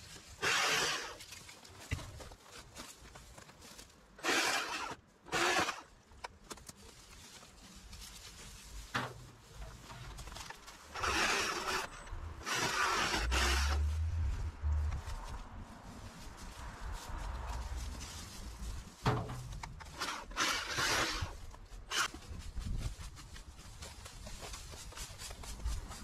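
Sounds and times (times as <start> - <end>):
scraping in plant debris: 6.6 - 26.0
low rumble: 13.3 - 19.0.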